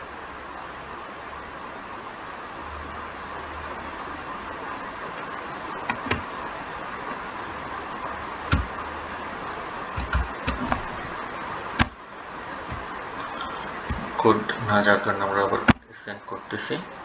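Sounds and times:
steady hiss: 0.0s - 17.0s
computer keyboard keys clicking: 10.0s - 10.8s.

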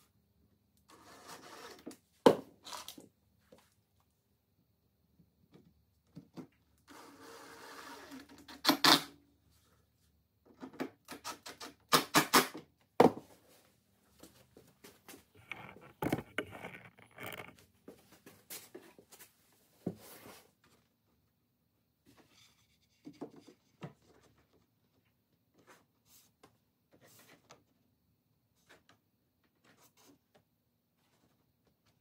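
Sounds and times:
wooden knocks and clicks: 15.4s - 17.6s.

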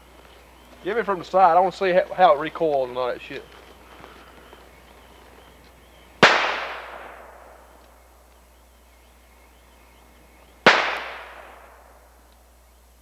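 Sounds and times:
revolver gunshots with echo: 6.2s - 7.8s, 10.6s - 12.1s.

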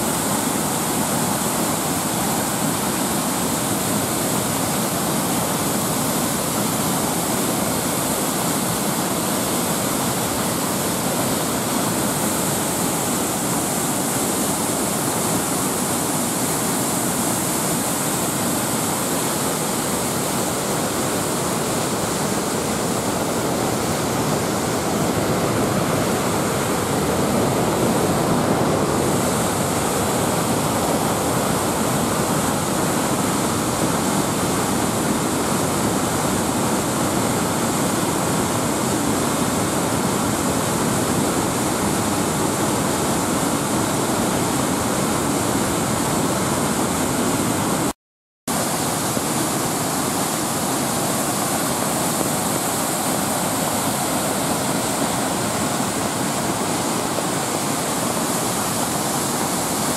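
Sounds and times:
waterfall rushing: 0.0s - 47.9s, 48.5s - 59.9s.

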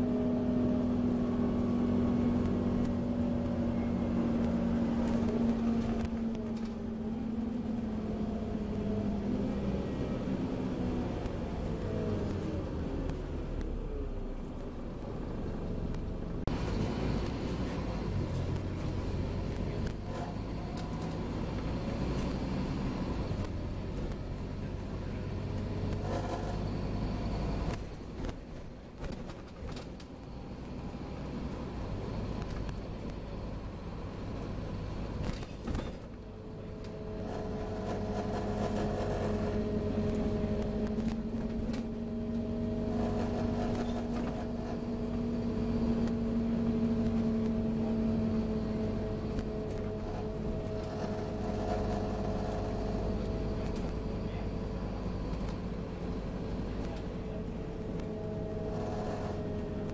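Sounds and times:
bus engine and road rumble: 0.0s - 59.9s
steady multi-tone whine: 35.7s - 59.9s.

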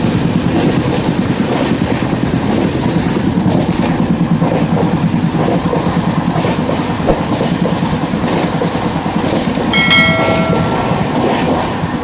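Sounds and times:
short bright chime: 9.8s - 11.2s.

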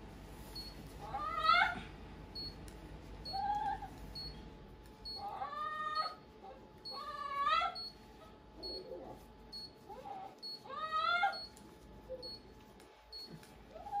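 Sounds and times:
dog crying loudly: 1.0s - 1.9s, 5.2s - 6.2s, 6.9s - 7.8s, 9.9s - 11.4s
dog whimpering: 5.1s - 7.9s, 9.9s - 11.5s.

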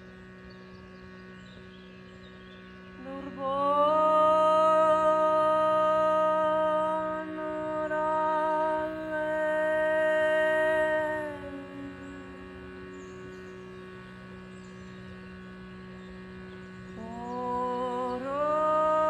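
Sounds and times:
shruti box drone: 0.0s - 19.0s
woman singing long wordless note: 3.0s - 13.5s, 16.9s - 19.0s.

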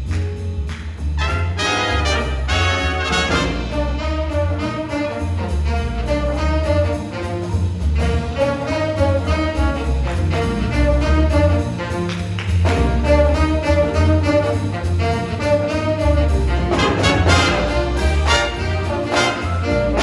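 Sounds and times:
jazz big band playing: 0.0s - 20.0s
upright bass walking: 0.0s - 20.0s
loud trumpets: 1.2s - 3.7s, 16.7s - 20.0s.

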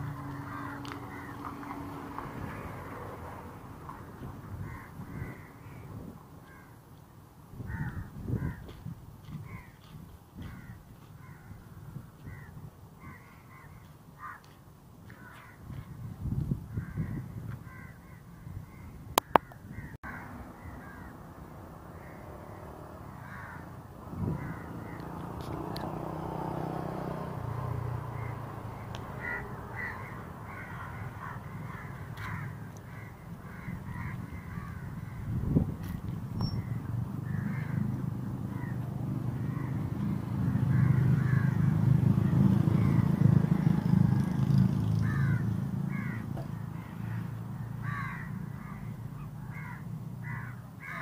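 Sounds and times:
crows cawing: 0.0s - 3.1s, 3.9s - 6.8s, 7.7s - 8.7s, 9.4s - 15.8s, 16.8s - 25.4s, 27.8s - 35.4s, 36.6s - 39.9s, 40.6s - 43.1s, 44.9s - 51.0s
low outdoor rumble: 0.0s - 6.2s, 15.2s - 50.9s
sharp click: 19.2s - 19.6s.

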